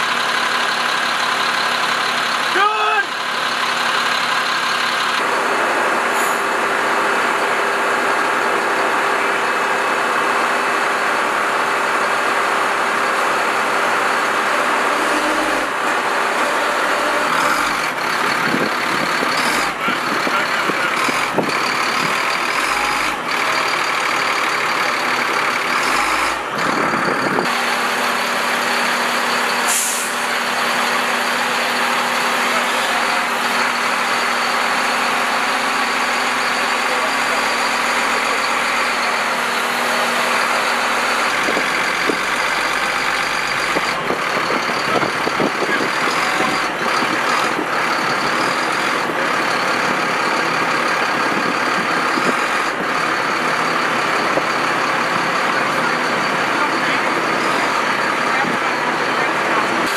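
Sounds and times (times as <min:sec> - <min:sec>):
diesel truck engine running: 0:00.0 - 0:59.9
short hiss of air: 0:29.7 - 0:30.2.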